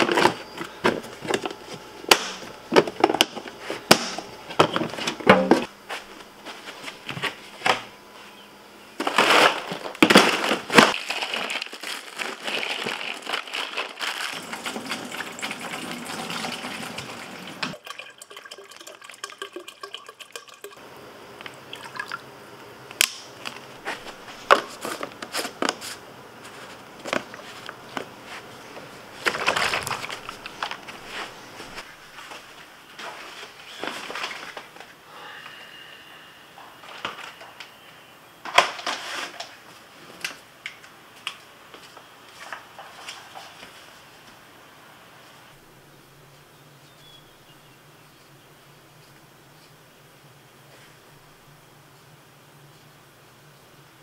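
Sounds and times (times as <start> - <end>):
ice clattering in cooler: 9.0 - 17.8, 29.2 - 30.8.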